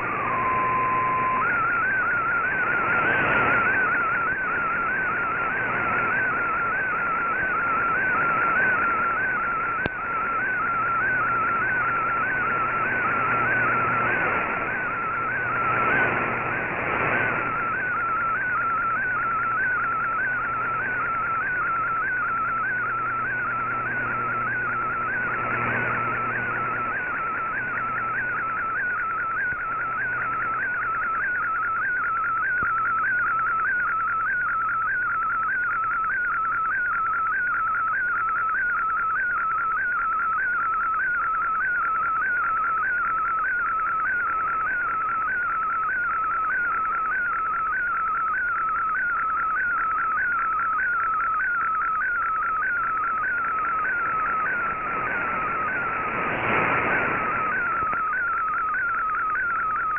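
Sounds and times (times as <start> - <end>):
radio band hiss: 0.0 - 30.5, 52.7 - 59.9
warbling data tone: 0.0 - 59.9.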